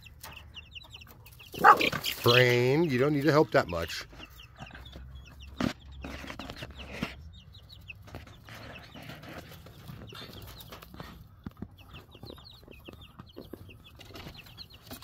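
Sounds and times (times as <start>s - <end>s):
young chickens peeping: 0.0s - 15.0s.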